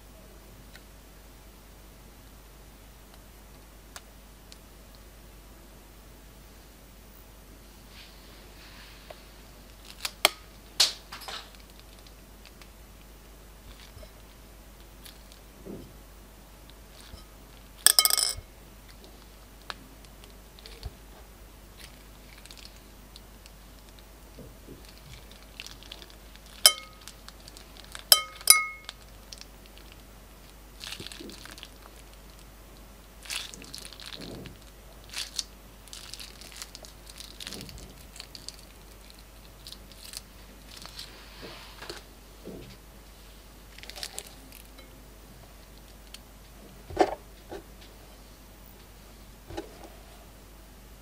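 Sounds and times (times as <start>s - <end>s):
plastic bag crinkling: 21.8s - 22.9s, 24.7s - 30.1s, 30.8s - 32.5s, 33.2s - 41.1s, 43.7s - 44.8s.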